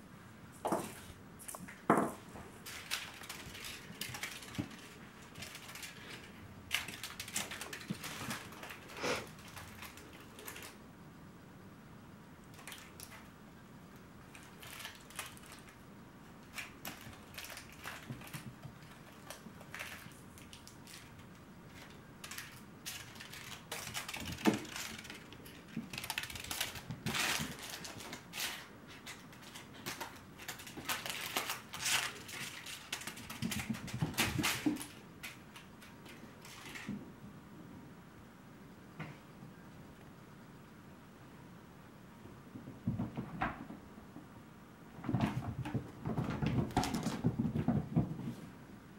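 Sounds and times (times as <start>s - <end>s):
crinkle ball toy crackling: 2.6s - 10.8s, 14.3s - 15.8s, 16.4s - 35.0s.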